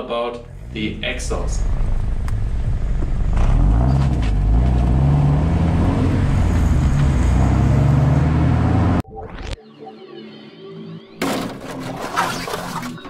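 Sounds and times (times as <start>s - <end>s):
car engine accelerating: 0.0s - 9.0s.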